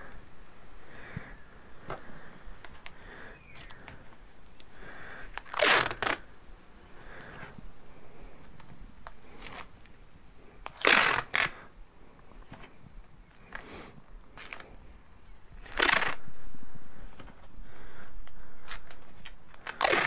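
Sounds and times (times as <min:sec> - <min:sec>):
rustling of tape and cardboard: 0:01.0 - 0:06.4, 0:07.0 - 0:20.0
tape ripping off roll: 0:05.3 - 0:06.3, 0:10.6 - 0:11.6, 0:15.6 - 0:16.3, 0:18.6 - 0:20.0.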